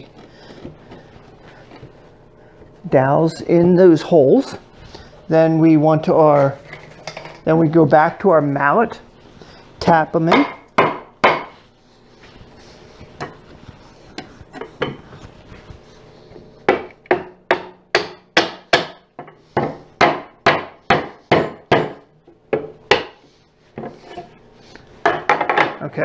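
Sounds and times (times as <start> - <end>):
rubber mallet striking wood: 10.3 - 11.6, 16.7 - 23.2.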